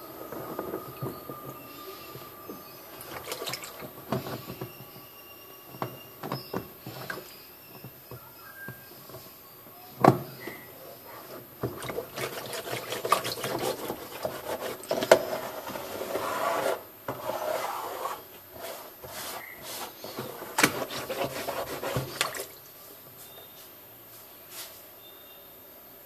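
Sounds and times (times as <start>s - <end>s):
cloth rubbing inside plastic tub: 2.9s - 4.5s, 11.1s - 22.6s.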